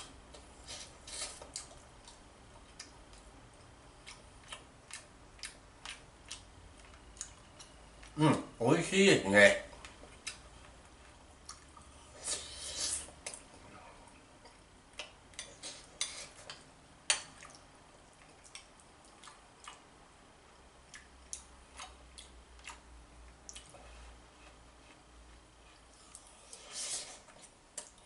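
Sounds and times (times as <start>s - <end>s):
soft eating sounds: 0.0s - 28.0s
spoon scraping a plate: 15.5s - 16.4s.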